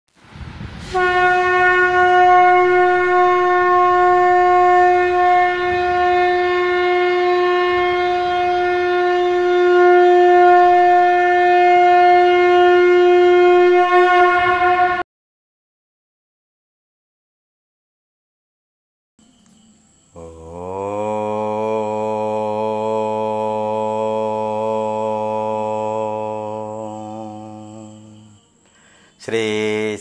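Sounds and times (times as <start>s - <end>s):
conch shell blast: 0.8s - 15.0s.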